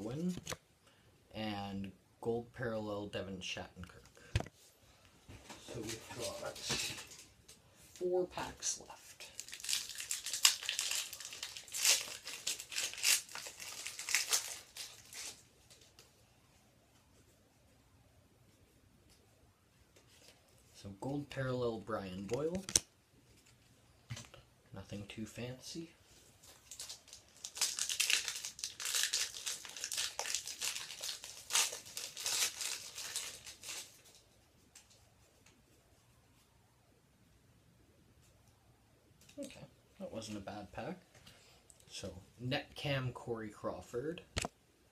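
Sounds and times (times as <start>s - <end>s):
plastic wrapper tearing and crinkling: 9.2s - 16.1s, 26.4s - 34.2s.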